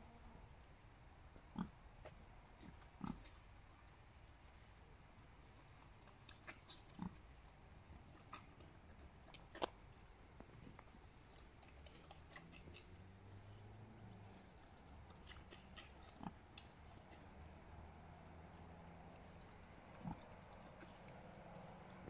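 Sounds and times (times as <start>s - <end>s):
pigs grunting: 1.5s - 1.8s, 2.6s - 3.4s, 6.5s - 7.2s, 15.1s - 17.0s, 19.9s - 22.0s.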